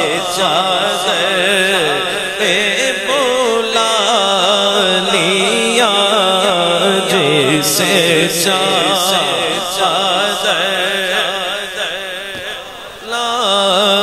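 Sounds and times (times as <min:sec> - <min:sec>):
man singing through loudspeaker: 0:00.0 - 0:14.0.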